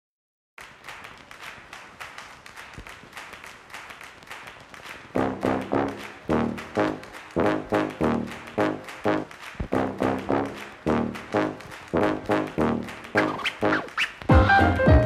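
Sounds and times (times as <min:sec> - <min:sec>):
loud brass notes: 0:05.2 - 0:15.0
light percussive beat: 0:13.1 - 0:15.0.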